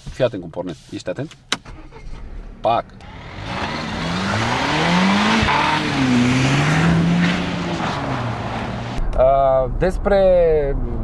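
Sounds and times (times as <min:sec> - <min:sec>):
car engine revving hard: 0:01.7 - 0:09.0.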